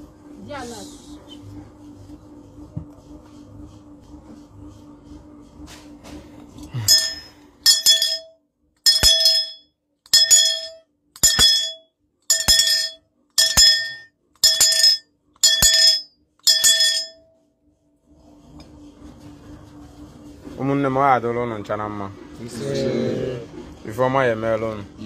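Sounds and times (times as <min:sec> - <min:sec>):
bell-like clinks: 0:06.8 - 0:08.3, 0:08.9 - 0:17.2.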